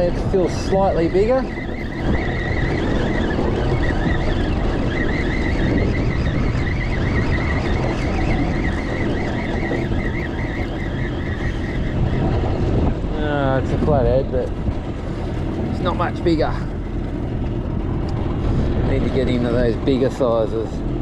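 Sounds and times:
fishing reel whirring: 0.0 - 12.9
water noise: 0.0 - 21.0
wind: 0.0 - 21.0.

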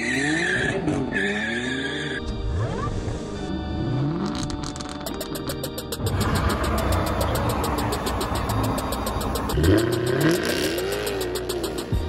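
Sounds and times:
sports car engine rumble: 5.2 - 12.0
car engine revving: 5.4 - 12.0.

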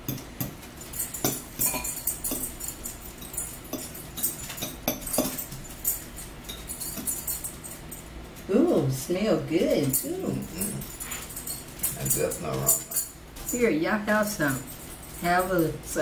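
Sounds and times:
forks scraping against plates: 0.8 - 8.5, 9.8 - 13.6.

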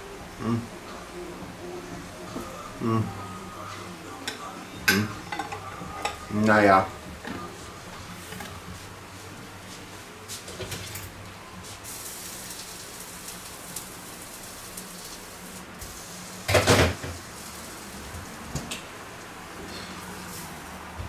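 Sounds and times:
steady low hum: 0.0 - 16.5
cookware clattering: 4.2 - 6.3.

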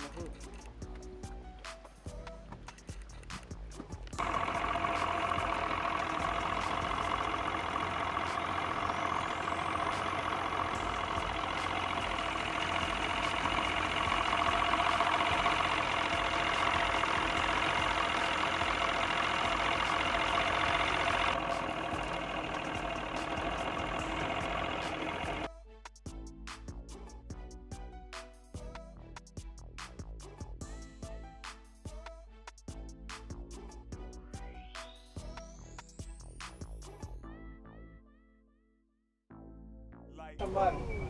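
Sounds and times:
boat motor running: 3.8 - 25.5.

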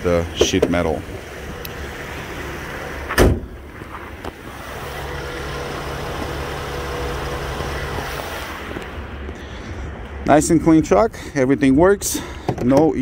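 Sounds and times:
car engine idling: 0.0 - 10.3
loud thump: 3.1 - 3.6.

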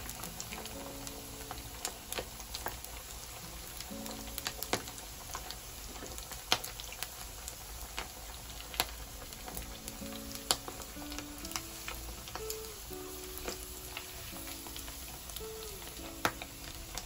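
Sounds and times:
squid deep-frying in oil: 0.0 - 17.0.

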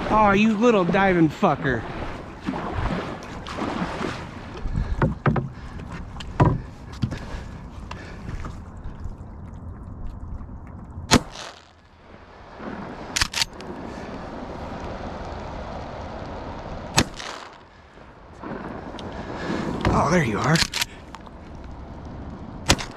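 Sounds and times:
shotgun shots: 11.1 - 11.7, 17.0 - 17.6, 22.7 - 22.9
sharp clicks: 13.2 - 13.7, 20.4 - 21.3.

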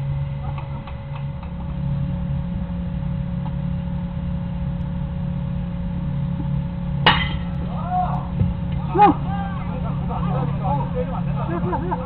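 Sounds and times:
low hum: 0.0 - 12.0
bat hitting baseball: 7.0 - 7.6.

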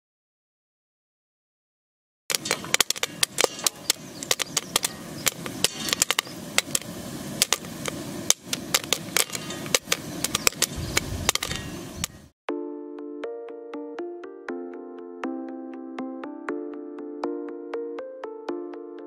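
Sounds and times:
popcorn kernels popping: 2.3 - 12.2
steady hiss: 2.3 - 12.4.

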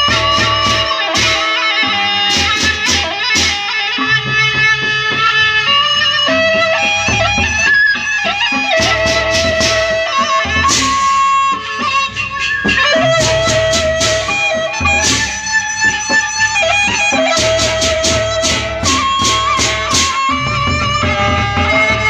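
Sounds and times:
large barrel drums: 0.0 - 1.6, 2.2 - 3.7, 7.0 - 22.0
hand cymbals clashing: 0.0 - 3.8, 10.7 - 11.3, 12.4 - 15.5, 17.0 - 20.4
bamboo flute melody: 0.0 - 4.6, 5.7 - 22.0.

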